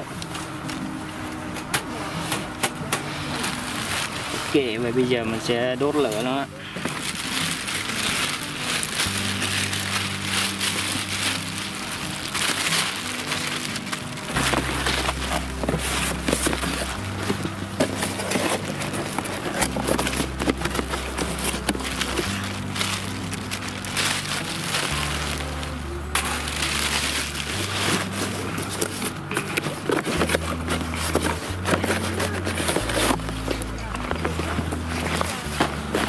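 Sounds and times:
music with slow bass notes: 0.0 - 36.0
fire crackling: 3.3 - 36.0.

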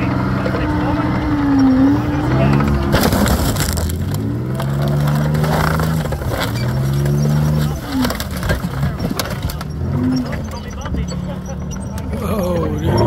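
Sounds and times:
tracked vehicle engine revving: 0.0 - 13.0
sheet metal crunching: 2.6 - 10.5.

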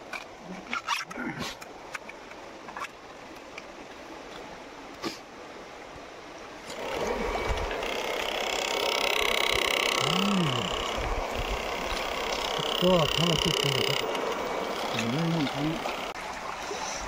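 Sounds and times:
handling noise with click: 0.0 - 3.7
stream water rushing: 0.0 - 17.0.

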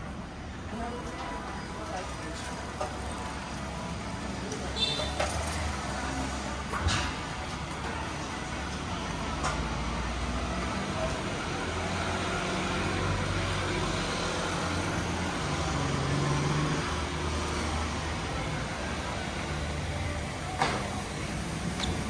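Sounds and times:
road noise: 0.0 - 22.0
vehicle engines passing: 0.0 - 22.0.

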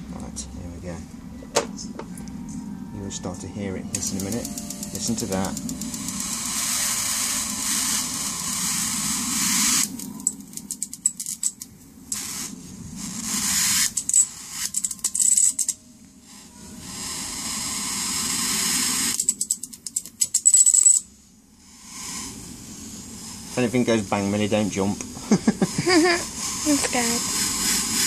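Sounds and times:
high voltage arcing hiss: 3.9 - 20.4, 21.2 - 28.0.

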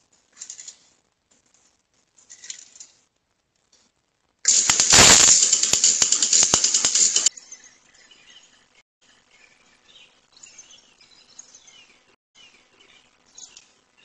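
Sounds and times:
faint rustles: 0.0 - 4.0
lawn sprinkler water spray hissing: 4.5 - 7.3
sprinkler rapid clicks: 4.5 - 7.3.

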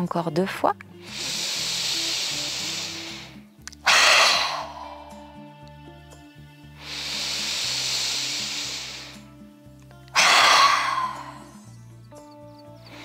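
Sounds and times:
woman inhaling through nose: 0.9 - 5.4, 6.7 - 9.4, 10.1 - 11.7
forceful exhale through mouth: 1.0 - 5.3, 6.8 - 9.4, 10.1 - 11.6.

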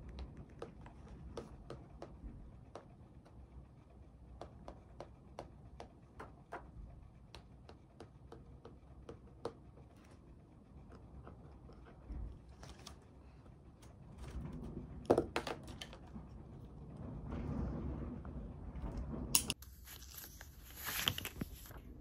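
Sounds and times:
paper handling: 19.6 - 21.8.

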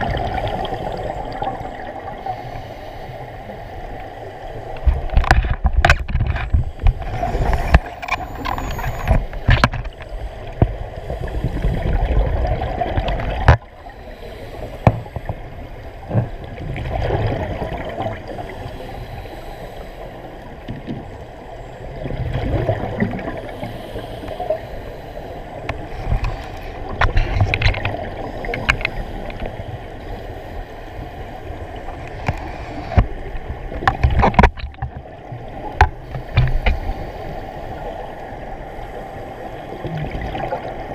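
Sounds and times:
underwater bubbling exhalations: 0.0 - 2.2, 11.1 - 13.6, 22.0 - 23.6, 39.7 - 40.9.

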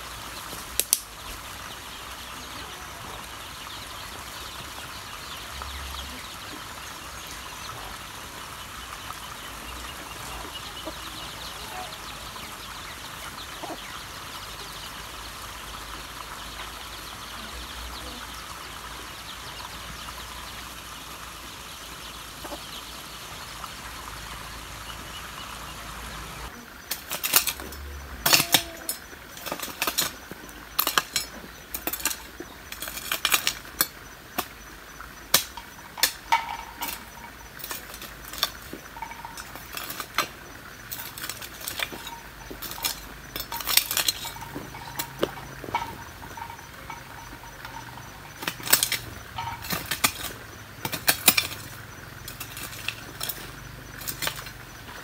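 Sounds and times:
steady hiss: 0.0 - 55.0
chicks peeping: 0.2 - 26.7, 44.3 - 49.6
hen clucking: 5.8 - 14.9, 22.2 - 23.2, 41.8 - 49.6.

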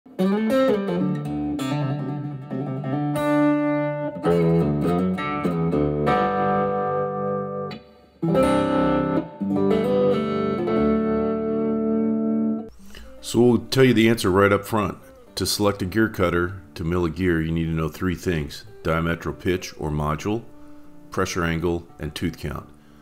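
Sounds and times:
plucked guitar music: 0.1 - 23.0.

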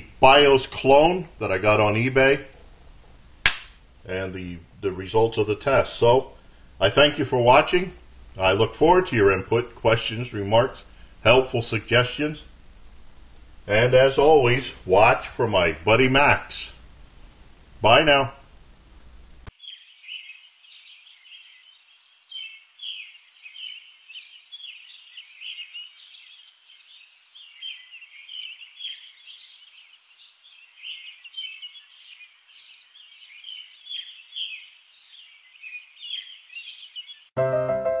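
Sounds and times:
birds chirping and singing: 19.5 - 37.4
piano music: 37.4 - 38.0.

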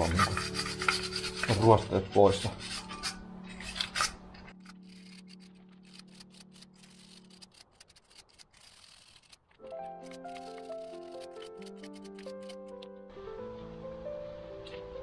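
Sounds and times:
hand sanding metal: 0.0 - 4.2, 5.0 - 9.4
music: 0.0 - 7.6, 9.6 - 15.0.

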